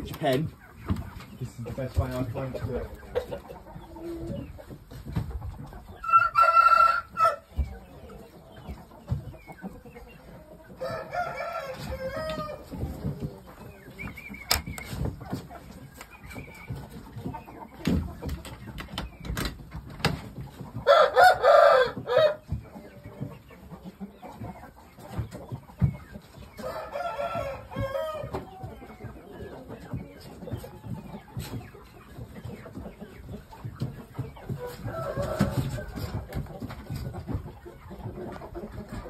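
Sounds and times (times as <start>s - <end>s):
rooster crowing: 10.8s - 12.6s, 20.9s - 22.4s, 26.6s - 28.3s.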